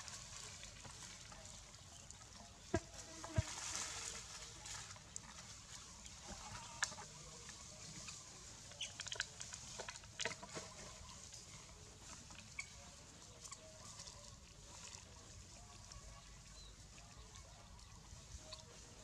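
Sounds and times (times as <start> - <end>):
dry leaves and twigs crackling: 0.0 - 19.0
faint animal calls: 6.2 - 19.0.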